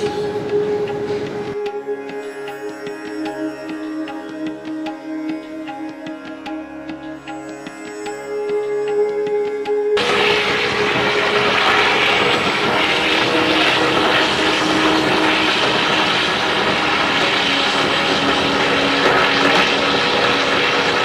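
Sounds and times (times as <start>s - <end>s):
sitar and tabla music: 0.0s - 21.0s
kitchen ventilation roar: 10.0s - 21.0s.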